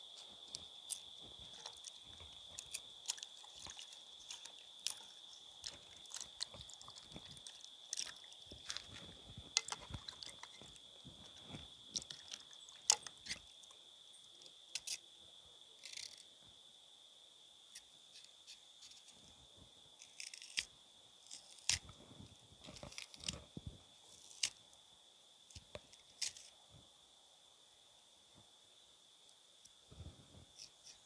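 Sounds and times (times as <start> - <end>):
crickets chirring: 0.0 - 31.0
water sloshing in pot: 3.2 - 10.7.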